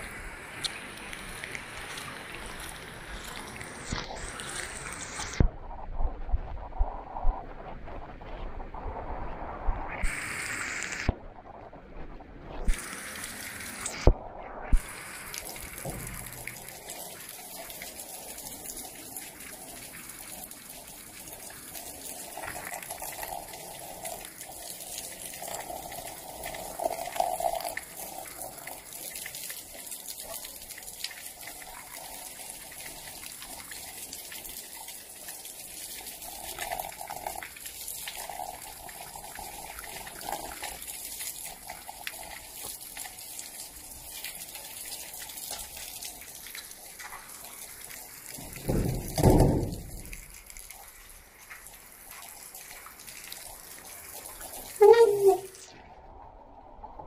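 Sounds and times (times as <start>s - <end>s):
rainwater splashing on concrete: 0.0s - 5.5s, 10.0s - 11.2s, 12.6s - 55.7s
sharp knocks: 48.4s - 50.1s.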